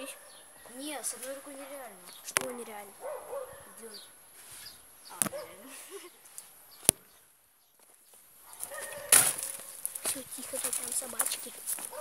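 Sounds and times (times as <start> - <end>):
dogs barking and whining: 3.0 - 3.7, 8.5 - 9.8
loud rustle: 8.9 - 12.0.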